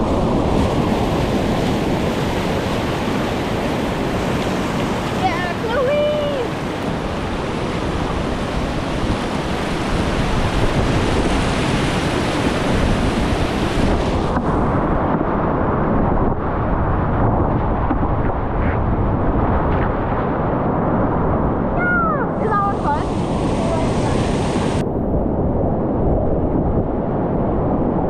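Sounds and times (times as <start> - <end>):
whitewater rushing and crashing: 0.0 - 17.4, 20.6 - 24.8.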